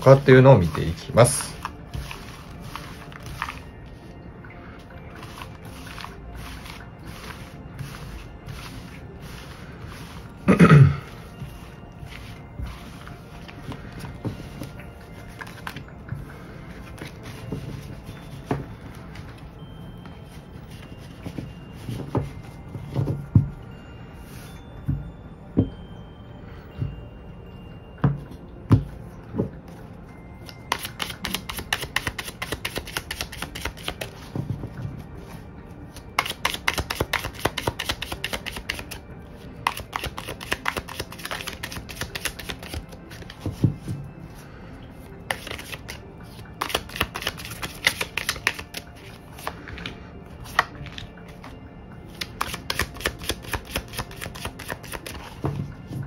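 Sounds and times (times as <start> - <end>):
cards being shuffled: 0.0 - 4.0, 5.1 - 10.3, 12.1 - 15.8, 30.4 - 34.4, 35.3 - 39.0, 39.6 - 43.8, 45.3 - 55.5
soft background music: 0.0 - 56.0.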